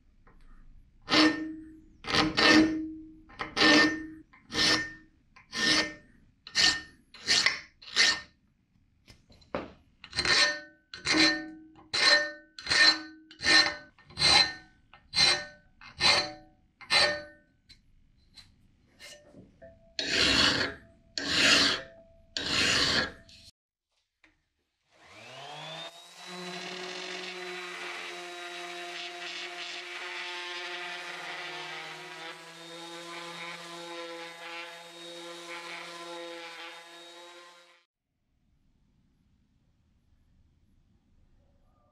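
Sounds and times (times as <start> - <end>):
file rasping on steel blade: 1.1 - 8.3, 10.1 - 17.4, 20.0 - 23.5
orbital sander whining: 25.0 - 37.6.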